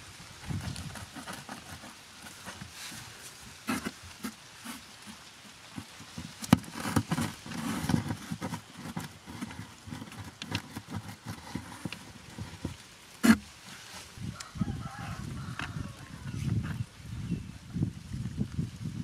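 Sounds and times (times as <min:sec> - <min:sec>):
cardboard rustling: 0:00.3 - 0:14.2
blade scraping cardboard box: 0:00.5 - 0:13.9.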